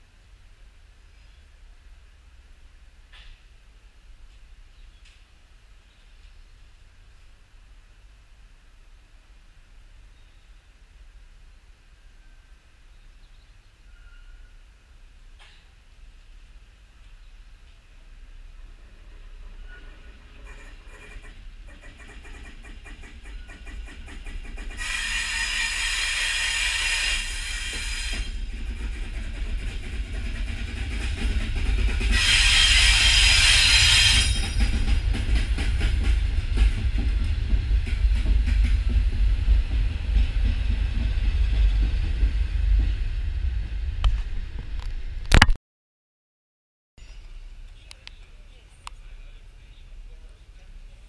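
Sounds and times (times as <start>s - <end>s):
train rumbling on rails: 0.0s - 45.4s
train horn blasts: 24.8s - 28.4s, 32.1s - 34.5s.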